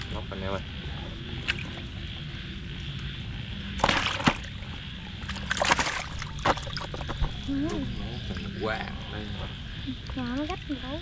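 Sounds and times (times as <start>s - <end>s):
water splashing and sloshing: 1.2s - 2.2s, 3.7s - 7.6s.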